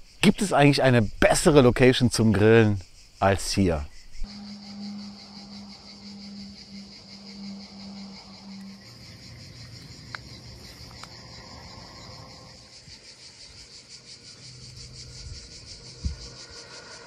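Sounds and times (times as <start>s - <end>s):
insects chirring: 0.0s - 17.0s
faint ticks: 9.6s - 11.4s.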